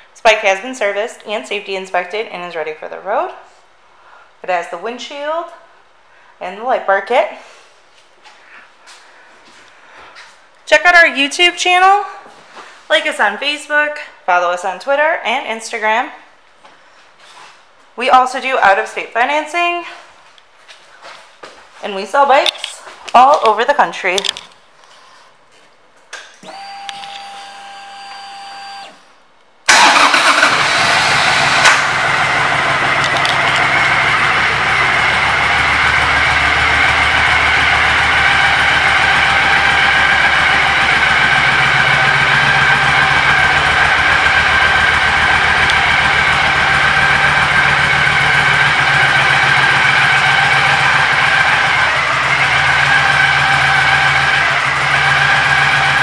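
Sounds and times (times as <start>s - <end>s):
motorcycle engine starting and idling: 26.4s - 29.1s, 29.7s - 56.0s.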